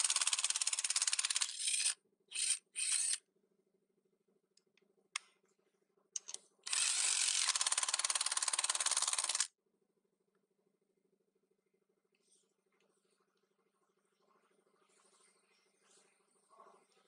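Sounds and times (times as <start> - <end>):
click: 4.5 - 5.4, 6.2 - 6.4.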